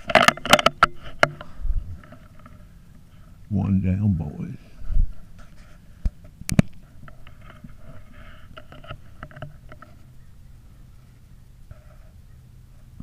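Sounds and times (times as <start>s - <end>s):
scattered clicks and rustling: 0.0s - 2.6s, 5.4s - 10.1s.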